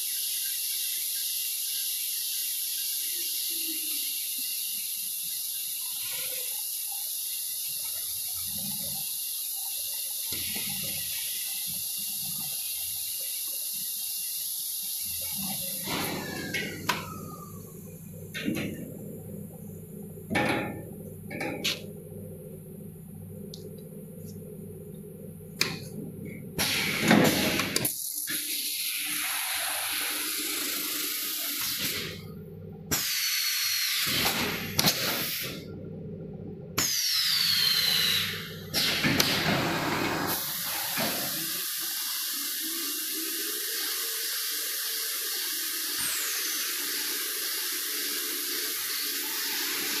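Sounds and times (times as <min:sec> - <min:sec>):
machine humming: 0:14.7 - 0:28.0
loud steady hissing: 0:36.9 - 0:50.0.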